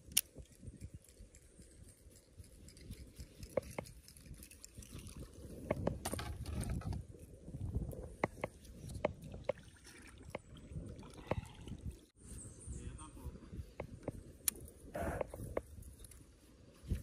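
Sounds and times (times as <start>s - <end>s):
water lapping against kayak hull: 8.1s - 12.1s.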